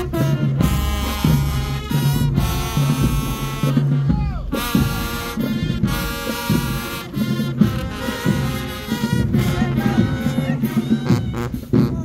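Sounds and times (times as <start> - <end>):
brass chords: 0.0 - 12.0
drums: 0.0 - 12.0.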